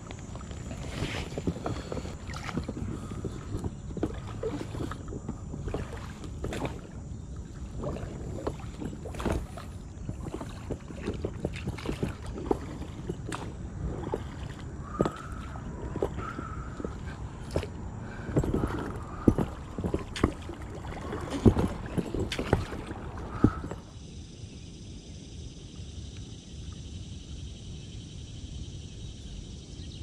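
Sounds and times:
water sloshing and splashing: 0.0s - 23.9s.

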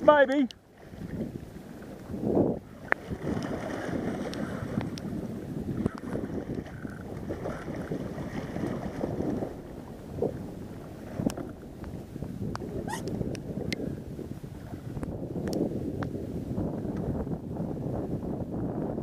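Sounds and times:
wind buffeting microphone: 0.0s - 19.0s
shark splashing water: 2.7s - 11.9s.

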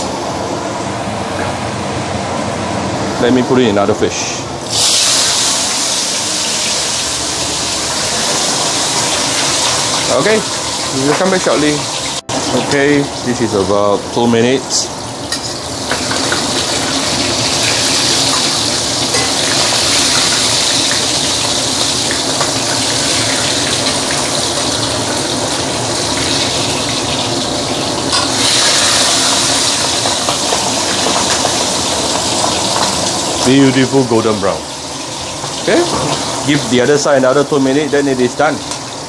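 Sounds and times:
hot oil sizzling in a wok: 4.6s - 39.0s.

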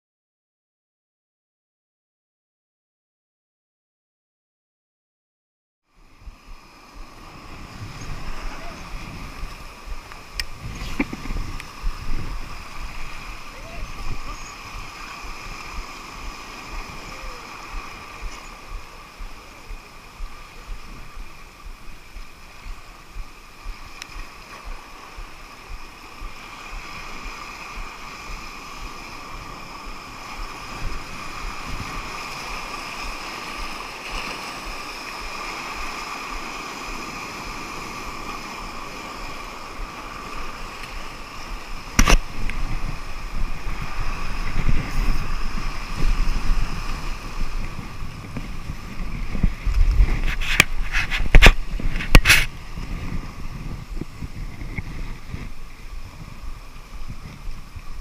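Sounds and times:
surf washing over rocks: 5.9s - 58.0s
wind gusting on microphone: 6.0s - 58.0s
steady high whine: 6.2s - 37.6s.

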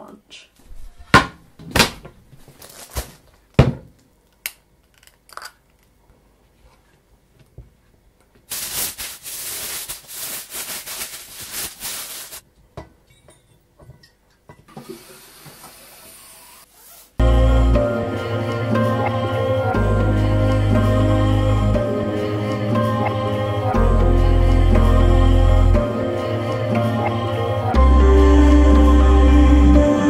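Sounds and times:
foil crinkling: 2.4s - 3.3s, 8.5s - 12.4s.

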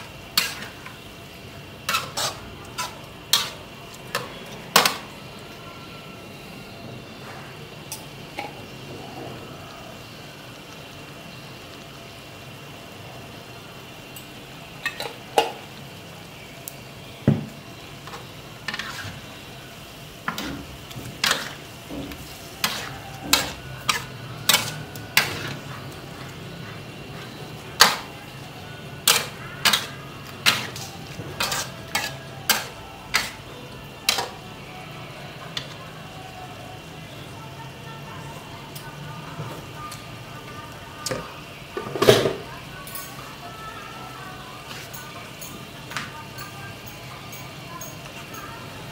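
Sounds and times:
low sizzle: 0.0s - 48.9s
metal spatula clanking in wok: 21.2s - 25.5s, 29.0s - 33.4s.

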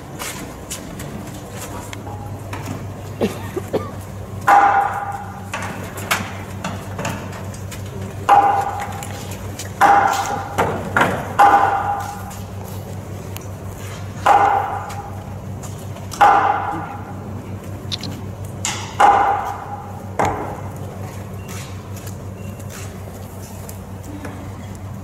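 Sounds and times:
hammer striking metal: 4.5s - 5.6s, 14.2s - 15.2s.

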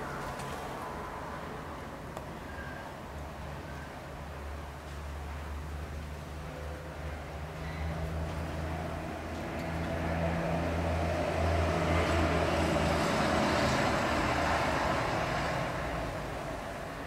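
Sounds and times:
vehicle passing by: 7.0s - 17.0s.

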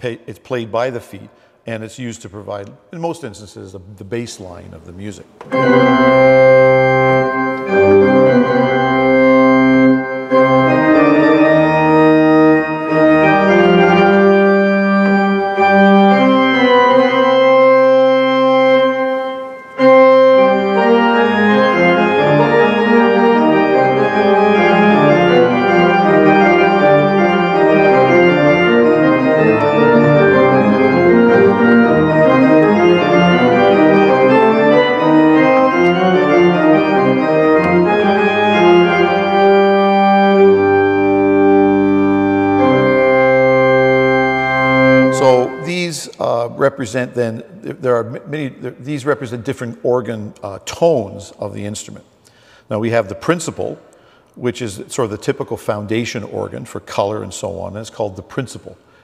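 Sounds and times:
pipe organ playing: 4.4s - 50.1s.

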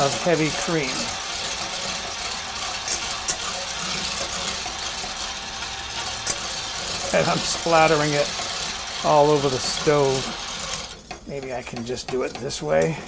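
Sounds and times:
immersion blender motor whirring: 0.0s - 11.2s
liquid churning: 0.0s - 13.0s.

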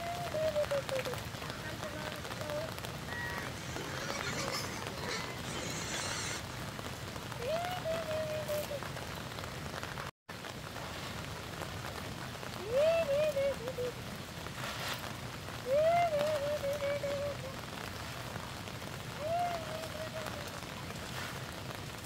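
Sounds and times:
rain hiss: 0.0s - 22.0s
drawn-out wavering call: 3.0s - 6.5s, 12.6s - 14.0s, 15.6s - 17.6s.

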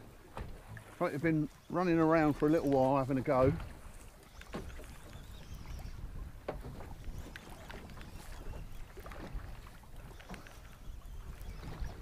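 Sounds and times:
water slapping against boat hull: 0.0s - 12.0s
wind rumble on microphone: 3.1s - 12.0s.

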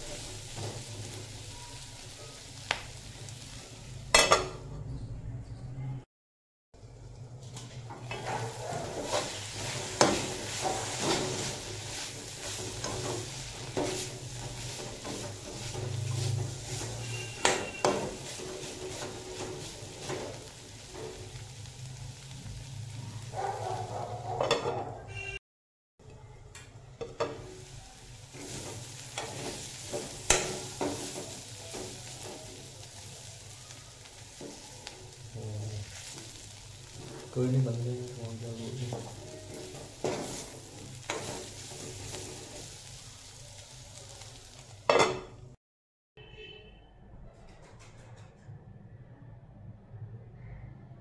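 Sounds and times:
light sizzle of frying: 0.0s - 4.8s, 6.8s - 25.4s, 26.4s - 45.6s
metal spatula scraping pan: 7.6s - 21.2s.

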